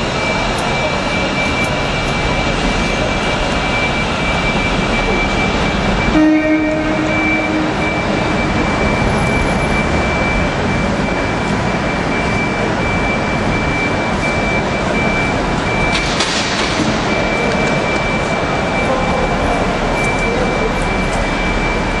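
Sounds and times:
electric train running: 0.0 - 22.0
high electronic beeping: 0.0 - 22.0
train horn: 6.1 - 7.8.

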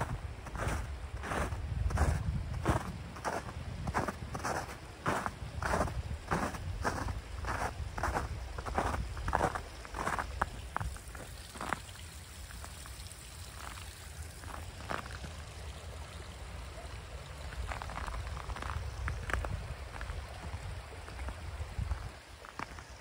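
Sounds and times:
footsteps crunching in snow: 0.0 - 11.9
brook trickling: 0.0 - 23.0.

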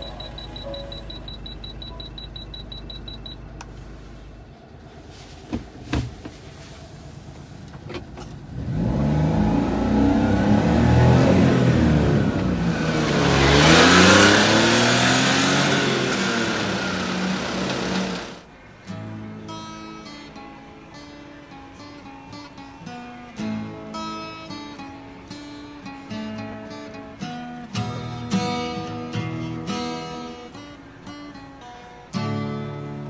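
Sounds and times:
short electronic beeps: 0.0 - 3.5
small truck engine accelerating: 0.0 - 4.9, 6.6 - 18.5.

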